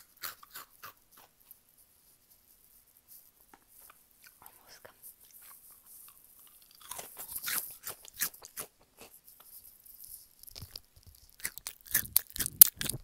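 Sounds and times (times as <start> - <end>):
chewing crisp snack: 5.2 - 13.0.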